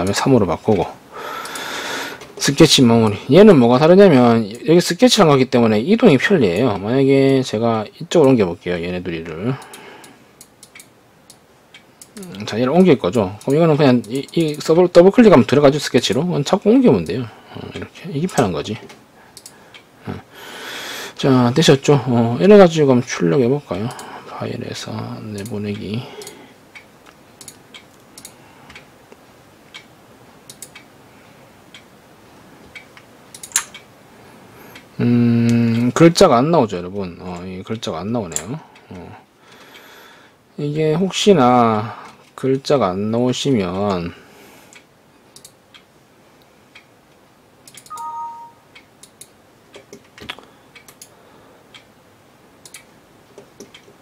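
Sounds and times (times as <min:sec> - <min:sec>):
computer mouse clicking: 0:10.4 - 0:12.4, 0:18.3 - 0:19.6, 0:27.1 - 0:28.8, 0:30.5 - 0:30.9, 0:32.7 - 0:33.8, 0:45.4 - 0:45.6, 0:47.7 - 0:51.1, 0:52.6 - 0:54.0
two-note electronic beep: 0:47.9 - 0:48.6.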